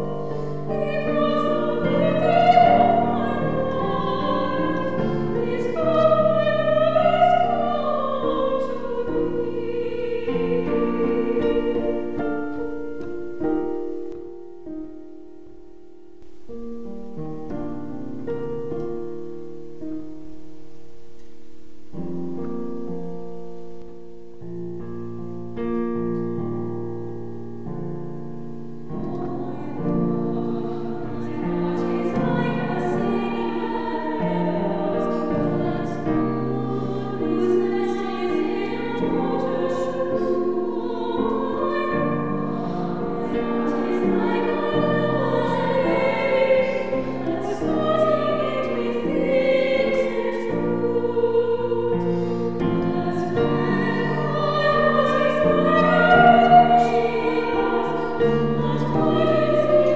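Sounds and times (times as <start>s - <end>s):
hymn singing: 0.0s - 15.2s, 27.6s - 59.9s
piano chords: 0.0s - 59.9s.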